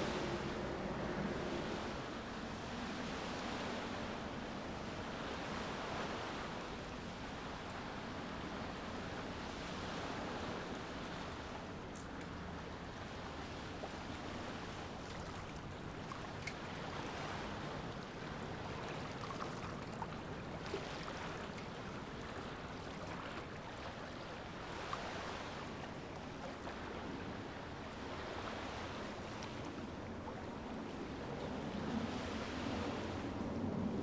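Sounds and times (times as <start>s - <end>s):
water: 0.0s - 34.0s
wind: 0.0s - 34.0s
faint ticks: 11.9s - 12.4s.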